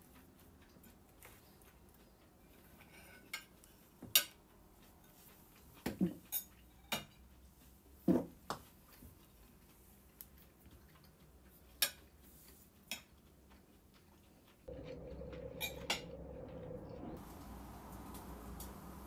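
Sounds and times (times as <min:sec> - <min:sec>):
faint steady hum: 0:13.5 - 0:19.0.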